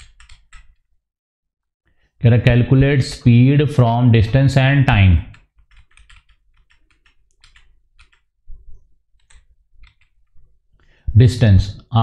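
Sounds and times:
computer keys clicking: 0.0 - 0.8, 5.3 - 8.3, 9.2 - 10.4.

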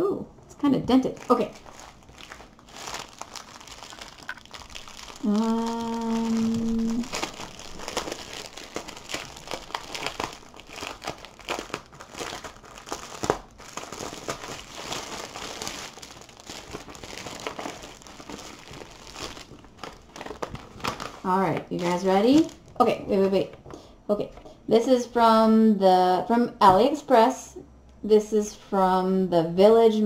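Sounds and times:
plastic wrapping crinkling: 0.9 - 24.4
person humming a note: 5.2 - 7.1.

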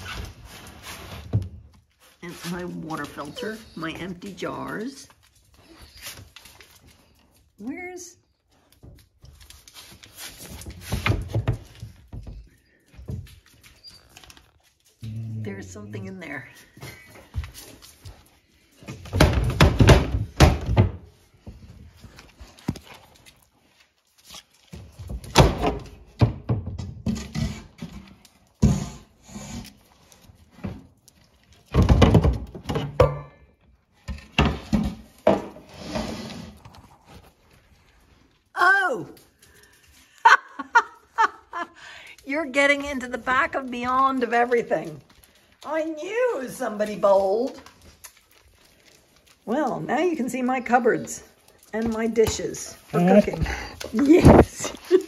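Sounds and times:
rustling: 0.0 - 26.0, 41.2 - 55.0.

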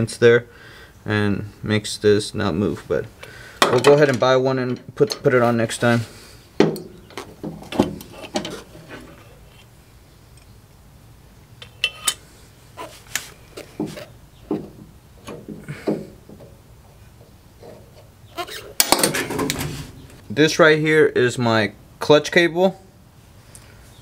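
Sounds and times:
metal clicks and clunks: 3.6 - 5.4, 6.6 - 9.1, 13.7 - 20.2.

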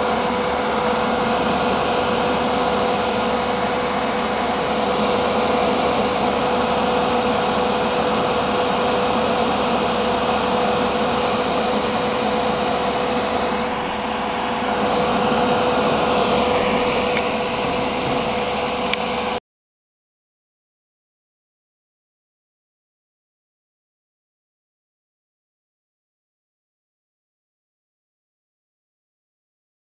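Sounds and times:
fan rushing air with humming tone: 0.0 - 19.4.

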